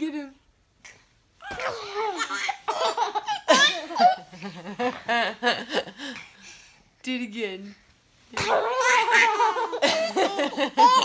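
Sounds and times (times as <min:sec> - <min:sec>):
baby belly-laughing: 0:01.4 - 0:04.3, 0:08.4 - 0:11.0.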